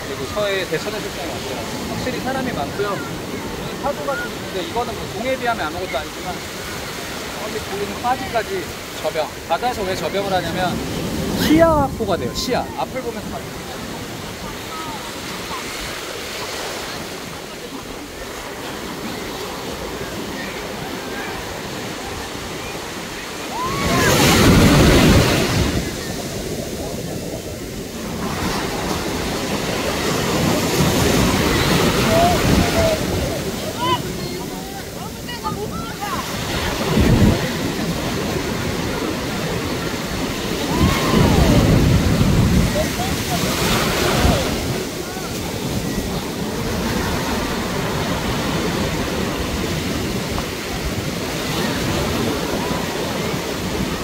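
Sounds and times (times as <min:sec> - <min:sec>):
surf breaking on beach: 0:00.0 - 0:54.0
wind buffeting microphone: 0:16.9 - 0:54.0.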